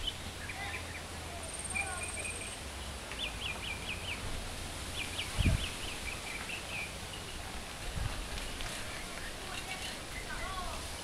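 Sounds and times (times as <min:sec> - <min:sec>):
small bird singing: 0:00.0 - 0:04.2, 0:04.9 - 0:07.4
outdoor background noise: 0:00.0 - 0:11.0.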